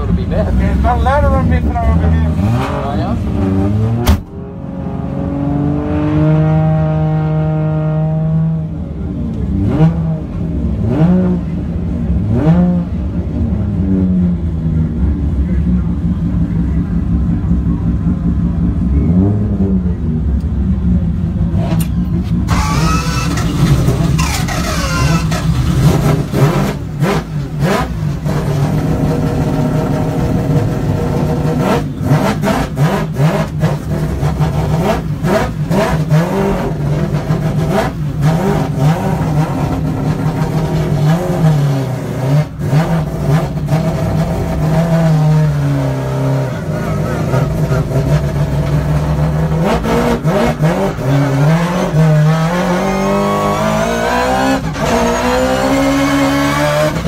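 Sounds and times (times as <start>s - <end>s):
rotary engine idling and revving: 0.0s - 57.0s.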